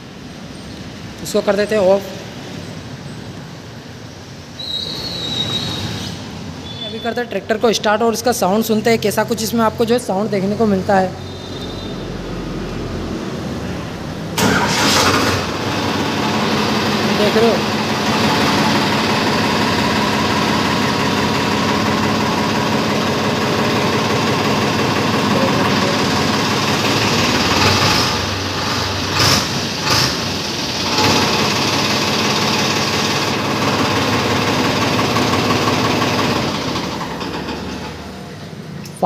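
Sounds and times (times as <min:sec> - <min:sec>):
tractor diesel engine idling: 0:14.4 - 0:38.7.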